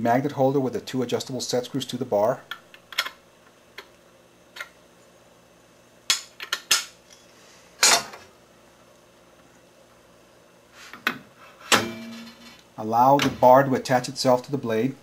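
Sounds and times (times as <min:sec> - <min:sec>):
metal clinks and knocks: 0:11.7 - 0:12.6.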